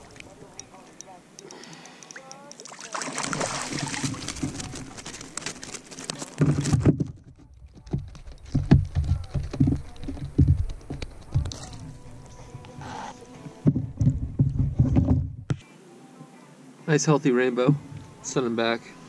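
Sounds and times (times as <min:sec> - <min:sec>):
fishing reel clicking: 0:01.0 - 0:02.7.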